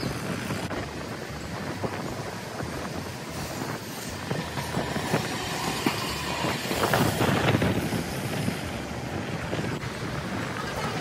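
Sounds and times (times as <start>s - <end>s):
streetcar wheels rumbling on rail: 0.0s - 11.0s
rail clicks: 2.3s - 11.0s.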